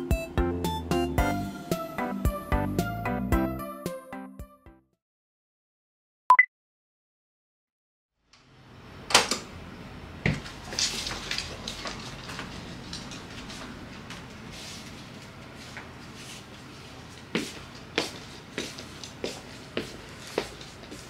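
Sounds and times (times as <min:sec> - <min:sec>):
clatter and rustling: 0:10.4 - 0:14.3.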